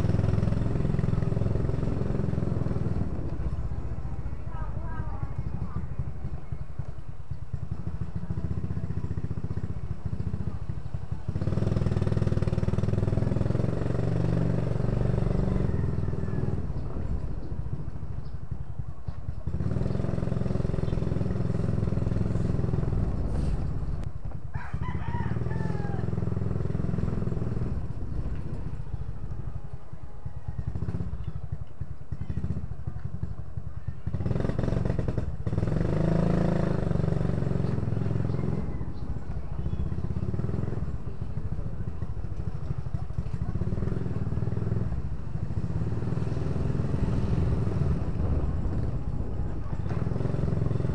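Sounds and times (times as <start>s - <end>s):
motorcycle engine: 0.0s - 50.9s
rooster crowing: 15.2s - 16.6s, 24.5s - 26.2s.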